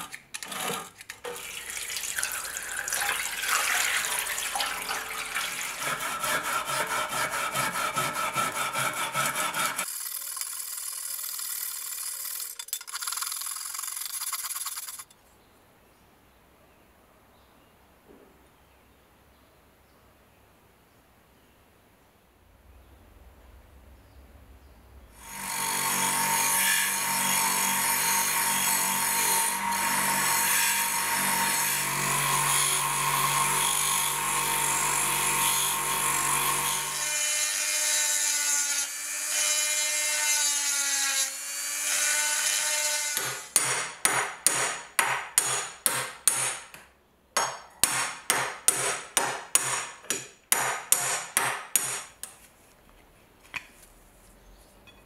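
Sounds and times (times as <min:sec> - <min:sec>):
rotary tool grinding steel: 0:05.0 - 0:15.1.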